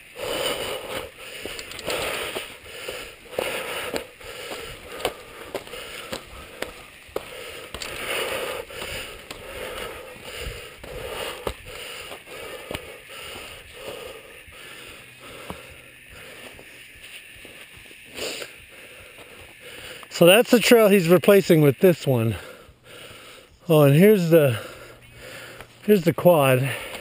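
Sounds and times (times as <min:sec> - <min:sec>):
tyres crunching on gravel: 0:00.0 - 0:23.0, 0:23.6 - 0:27.0
bike clicks and rattles: 0:00.2 - 0:13.6.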